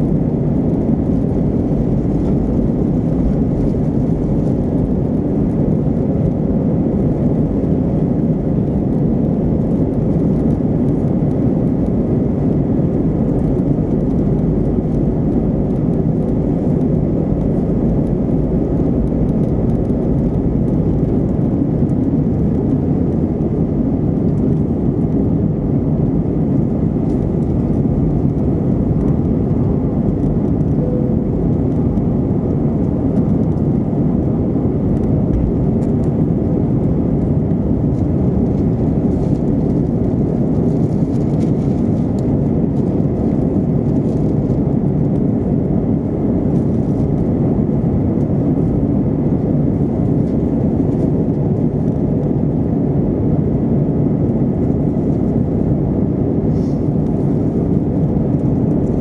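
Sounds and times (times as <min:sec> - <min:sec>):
faint steady whine: 0:00.0 - 0:59.0
jet engine roar from cabin: 0:00.0 - 0:59.0.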